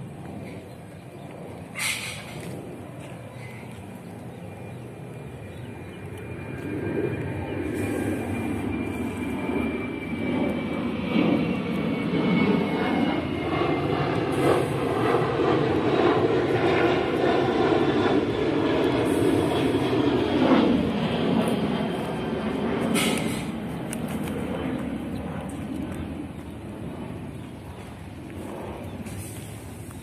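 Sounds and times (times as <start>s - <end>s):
low engine drone: 0.0s - 30.0s.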